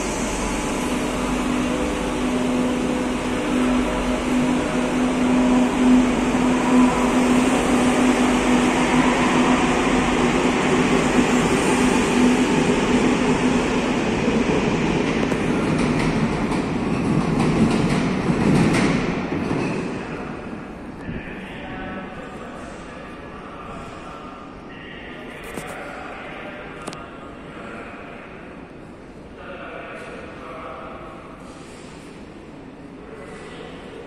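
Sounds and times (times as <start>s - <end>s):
wheels rumbling on rail: 0.0s - 20.3s.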